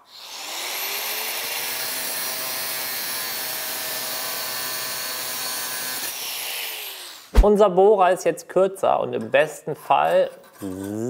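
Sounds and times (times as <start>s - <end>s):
angle grinder cutting steel: 0.0s - 7.3s.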